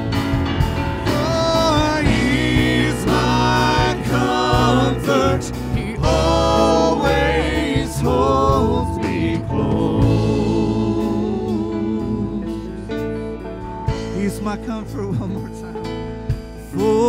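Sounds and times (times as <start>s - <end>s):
acoustic guitar: 0.0s - 17.0s
keyboard chords: 0.0s - 17.0s
worship band playing: 0.0s - 17.0s
several people singing: 1.0s - 13.3s.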